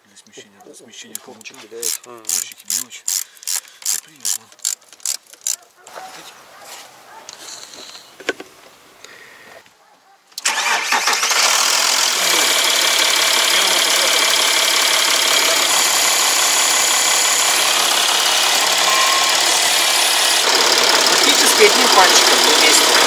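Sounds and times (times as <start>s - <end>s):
diesel engine starting and idling: 10.4s - 23.0s.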